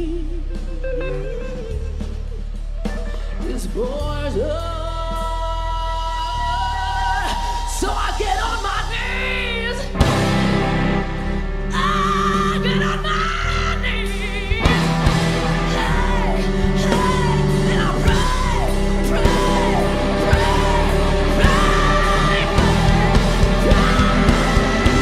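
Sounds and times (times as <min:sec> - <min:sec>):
distorted electric guitar: 0:00.0 - 0:04.6, 0:06.4 - 0:25.0
bass guitar: 0:00.0 - 0:25.0
drums: 0:00.0 - 0:25.0
woman singing and screaming: 0:03.4 - 0:10.0, 0:11.7 - 0:25.0.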